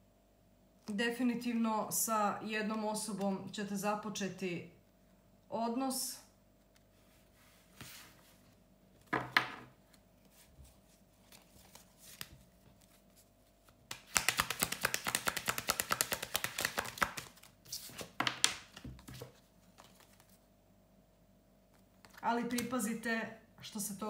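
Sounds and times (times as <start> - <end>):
card handling rustles: 9.8 - 20.4
cards shuffling rapidly: 10.2 - 20.4.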